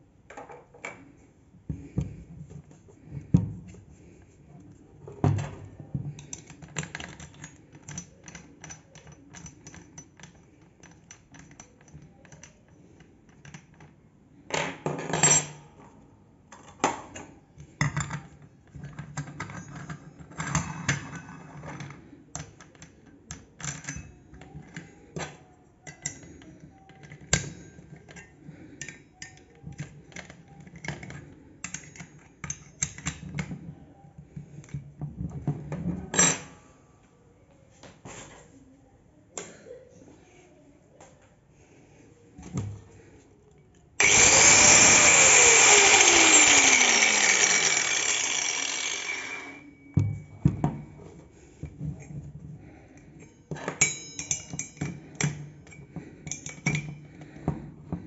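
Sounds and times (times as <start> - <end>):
metal parts clicking and clinking: 6.1 - 14.0, 17.8 - 33.5, 44.0 - 50.0, 53.2 - 57.2.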